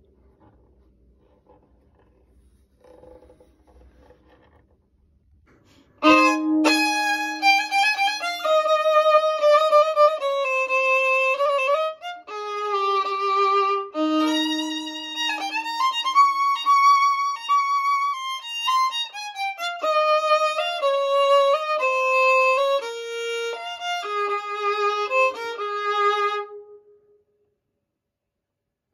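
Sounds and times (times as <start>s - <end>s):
violin played with a bow: 6.0s - 27.2s.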